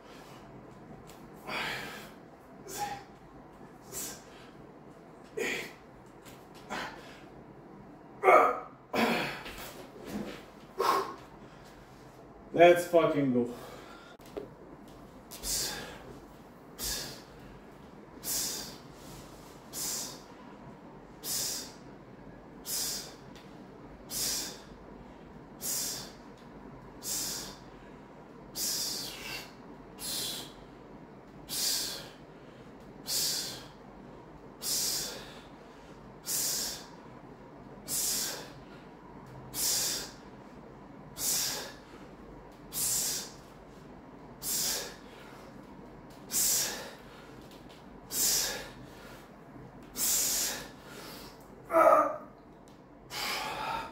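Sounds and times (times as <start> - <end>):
man breathing out sharply: 1.4 - 3.1, 16.8 - 17.4, 18.2 - 19.1, 33.0 - 33.7, 34.6 - 35.5, 37.9 - 38.7, 39.6 - 40.2, 41.2 - 42.0, 44.4 - 45.5, 46.3 - 47.3, 48.1 - 49.3, 50.0 - 51.4, 53.1 - 53.9.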